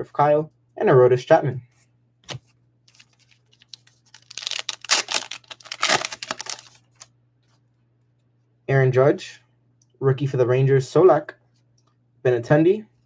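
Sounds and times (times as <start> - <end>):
wrapper tearing and crinkling: 2.9 - 7.1.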